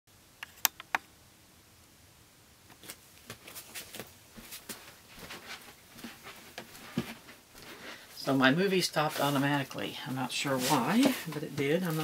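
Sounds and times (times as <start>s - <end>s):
sharp clicks: 0.4s - 1.1s
objects handled on a table: 10.6s - 12.0s.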